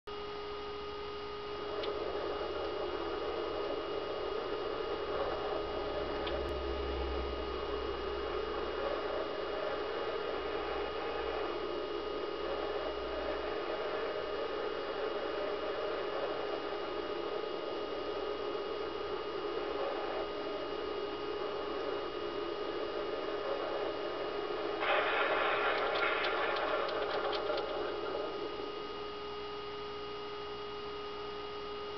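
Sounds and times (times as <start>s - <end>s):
constant hiss: 0.1s - 31.9s
constant tones: 0.1s - 31.9s
electrical hum: 0.1s - 31.9s
faint clicks: 6.2s - 6.6s
loud rushing hiss: 24.8s - 28.5s.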